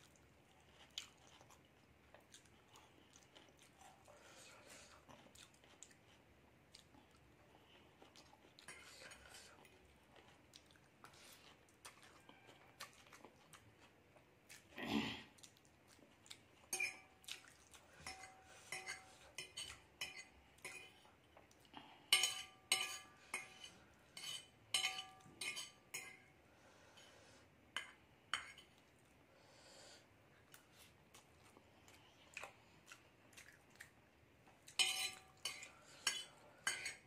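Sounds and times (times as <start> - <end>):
fork clinking on glass plate: 22.2 - 26.2, 34.8 - 37.0.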